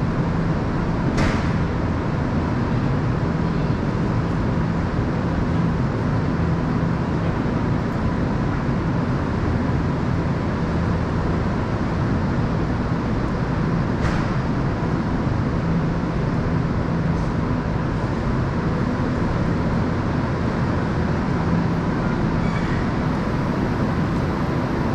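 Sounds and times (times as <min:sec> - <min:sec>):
train equipment humming: 0:00.0 - 0:24.9.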